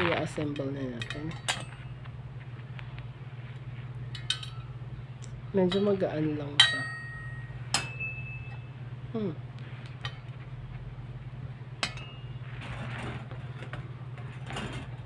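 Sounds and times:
steady low hum: 0.0s - 15.0s
scraping and rattling: 11.8s - 15.0s.

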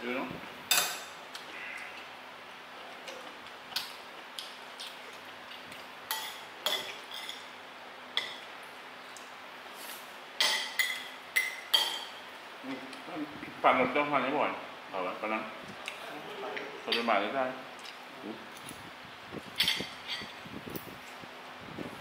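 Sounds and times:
cutlery clinking on plates: 10.4s - 12.1s.

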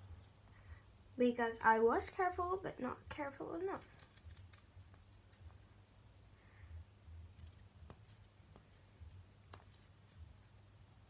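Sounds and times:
faint clicks of objects handled: 7.3s - 10.0s.

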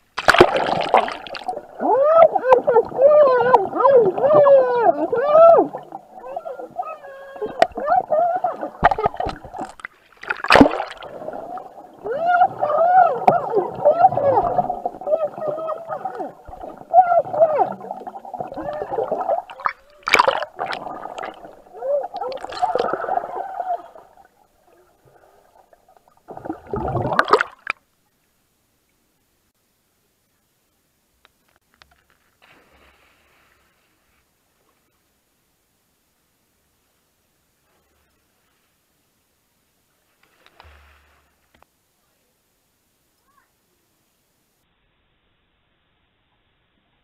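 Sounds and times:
burst of water noise: 0.0s - 1.8s, 8.6s - 15.2s, 15.9s - 24.1s
muffled underwater movement: 0.0s - 27.8s.

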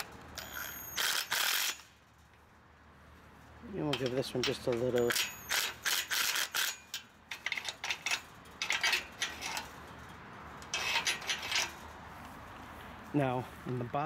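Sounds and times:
impact driver bursts: 0.6s - 1.9s, 5.1s - 6.9s
metal gate latch clinking and rattling: 3.8s - 9.7s, 10.6s - 11.8s.

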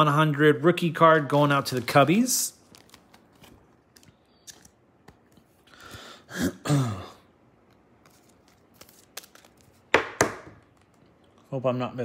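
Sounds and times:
man clearing his throat: 6.3s - 7.3s.

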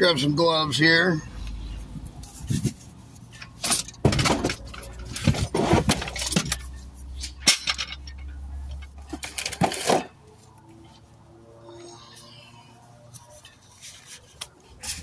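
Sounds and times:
tools clinking and knocking: 3.3s - 10.1s.

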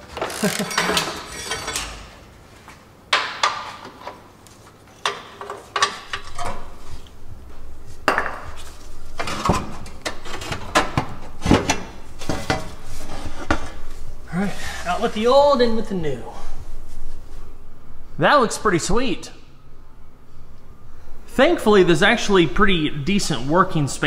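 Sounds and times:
metal tools clanking: 0.2s - 2.3s.

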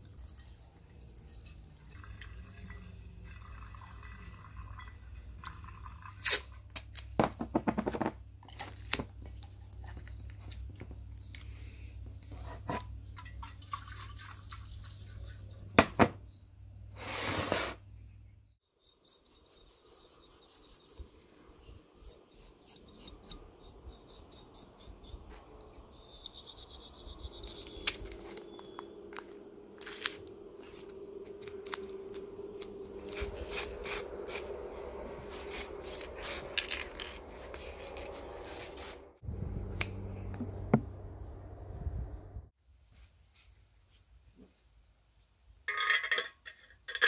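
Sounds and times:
steady low sound: 26.7s - 42.5s.

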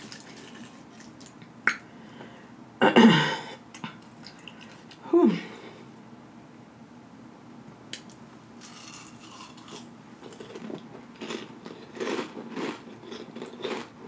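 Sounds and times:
chewing crunchy chip: 0.0s - 1.4s, 8.6s - 14.0s.

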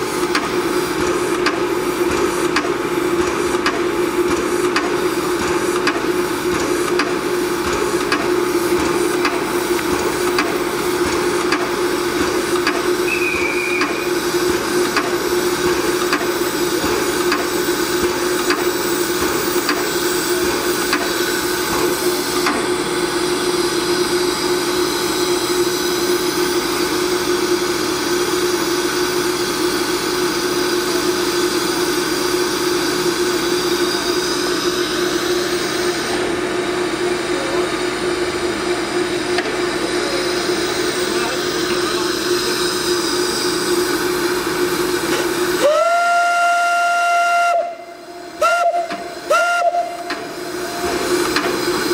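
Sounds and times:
steam locomotive hissing: 0.0s - 51.9s.

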